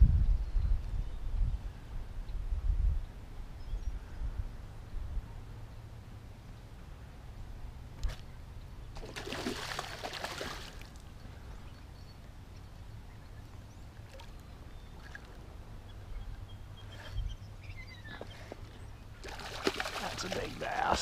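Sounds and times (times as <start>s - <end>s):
fish splashing in water: 9.0s - 10.9s, 19.2s - 21.0s.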